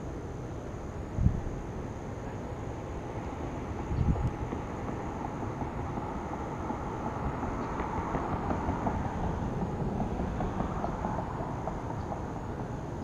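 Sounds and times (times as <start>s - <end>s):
faint high hum: 0.0s - 8.5s.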